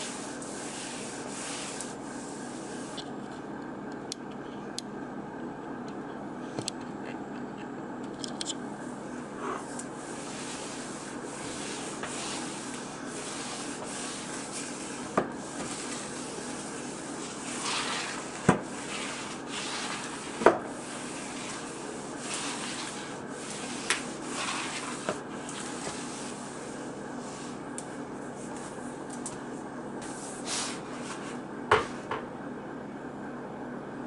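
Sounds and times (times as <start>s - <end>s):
wet mop swishing on tile: 0.0s - 3.0s, 9.6s - 27.7s, 30.0s - 32.1s.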